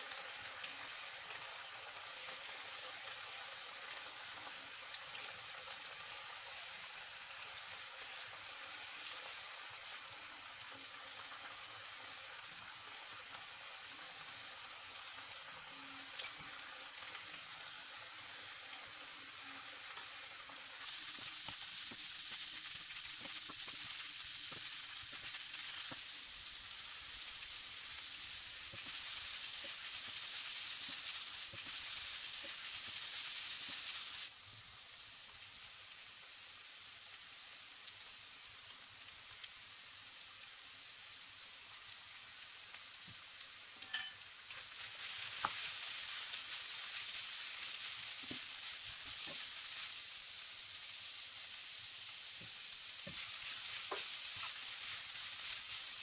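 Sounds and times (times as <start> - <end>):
meat sizzling in a pan: 0.0 - 56.0
spoon scraping and tapping pan: 16.2 - 16.6, 43.8 - 44.2, 53.1 - 54.6.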